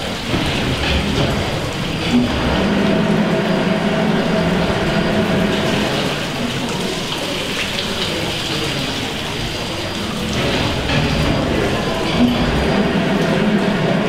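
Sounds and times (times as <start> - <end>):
machine hum: 0.0 - 14.0
pump plunger working: 0.0 - 14.0
water rushing and splashing: 0.0 - 14.0.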